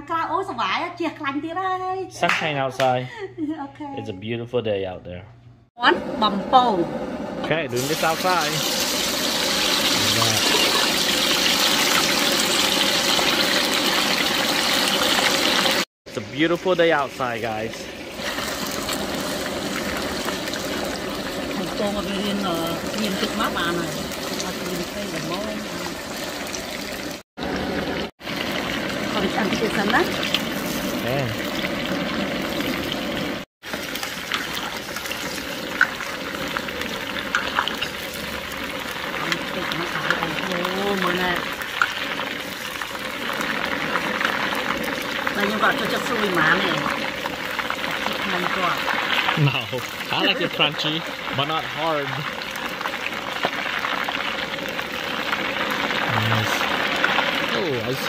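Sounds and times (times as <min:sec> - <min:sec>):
chicken sizzling in hot oil: 0:06.6 - 0:58.0.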